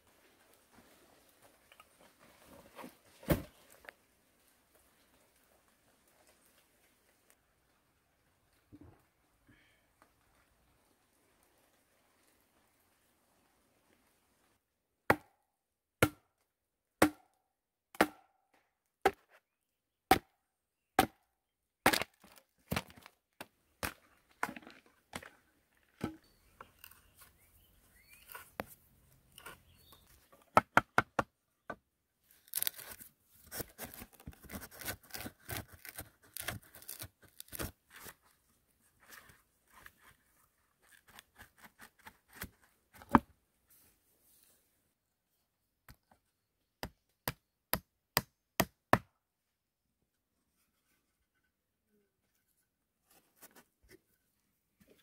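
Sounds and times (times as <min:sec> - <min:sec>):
wood scraping: 0:25.9 - 0:30.5.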